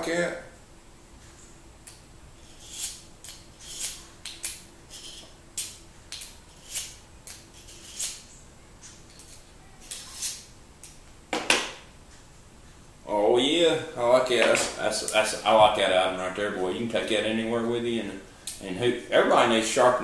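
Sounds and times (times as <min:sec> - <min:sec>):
knife scraping through sharpener: 0:02.4 - 0:05.7, 0:06.5 - 0:08.2, 0:09.2 - 0:10.4.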